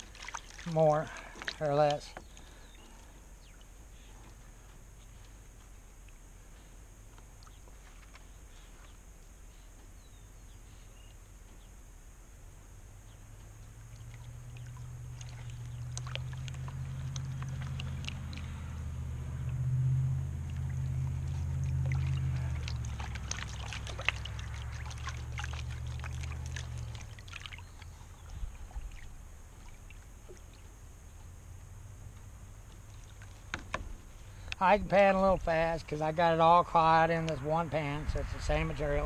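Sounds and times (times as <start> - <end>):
water sloshing in a pan: 0.0 - 2.6, 13.8 - 31.2
low engine hum: 0.0 - 39.0.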